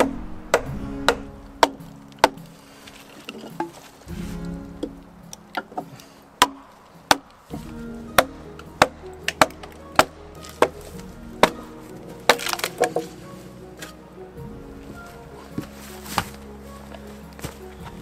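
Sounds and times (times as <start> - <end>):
log cracking: 0.0 - 14.0
background music with held tones: 0.0 - 18.0
wooden mallet knocking wedges: 5.6 - 13.2.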